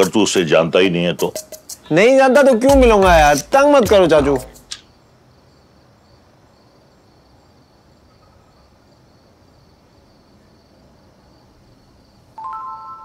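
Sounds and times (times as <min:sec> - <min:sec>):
crickets chirping: 0:00.0 - 0:13.0
held musical notes: 0:01.1 - 0:04.7.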